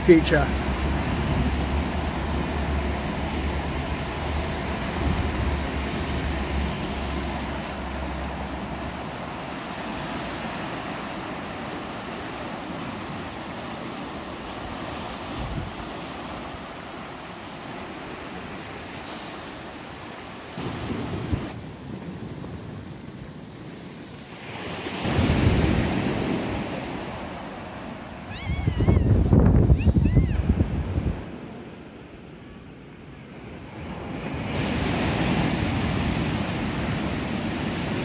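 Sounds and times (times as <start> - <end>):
sea waves washing in: 0.0 - 38.0
wind on microphone: 14.6 - 16.7, 28.2 - 31.4.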